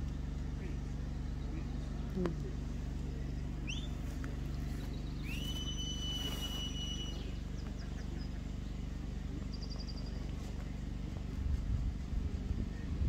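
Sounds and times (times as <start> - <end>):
steady low hum: 0.0 - 13.0
rapid whistle trill: 3.6 - 4.0, 5.2 - 7.4
long high whistle: 5.2 - 7.3.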